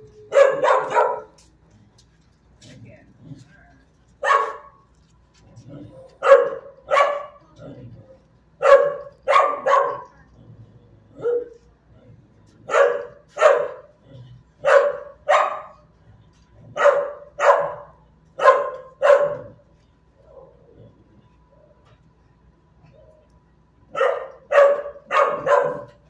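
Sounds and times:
dog barking: 0.3s - 1.5s, 4.2s - 4.8s, 6.2s - 7.4s, 8.6s - 10.2s, 11.2s - 11.6s, 12.7s - 13.9s, 14.6s - 15.9s, 16.7s - 19.6s, 23.9s - 26.0s.

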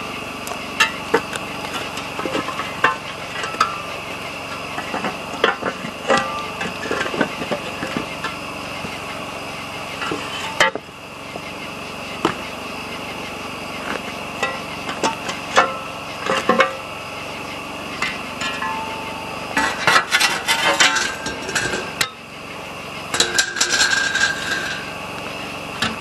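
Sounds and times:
metal shovel scraping rocks: 0.8s - 9.1s, 10.0s - 10.8s, 13.8s - 16.9s, 18.0s - 22.2s, 23.1s - 25.0s.

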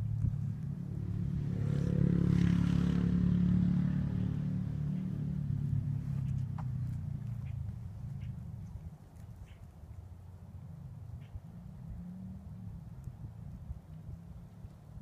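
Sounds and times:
engine passing by: 0.0s - 9.0s, 10.0s - 15.0s.

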